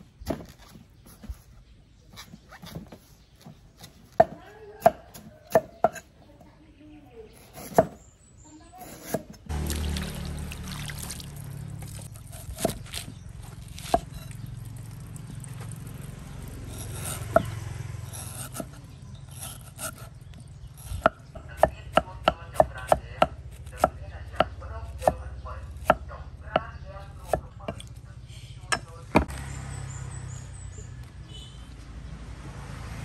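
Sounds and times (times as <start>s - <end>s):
cleaver chopping on wooden block: 3.4s - 6.1s, 7.4s - 8.0s, 16.8s - 18.8s, 19.4s - 25.2s, 25.8s - 28.0s
water splashing: 9.5s - 12.1s.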